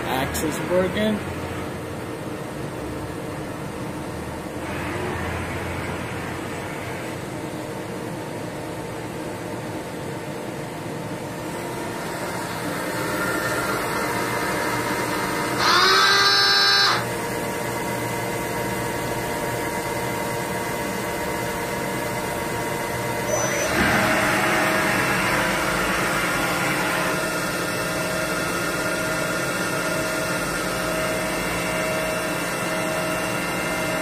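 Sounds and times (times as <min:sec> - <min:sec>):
machine hum with steady tones: 0:00.0 - 0:34.0
loud motor whine: 0:11.3 - 0:34.0.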